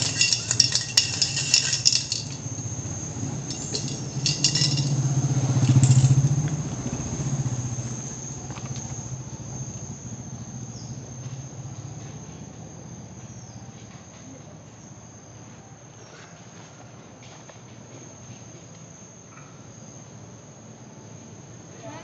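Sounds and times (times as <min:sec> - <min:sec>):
insects trilling: 0:00.0 - 0:16.4, 0:17.9 - 0:22.0.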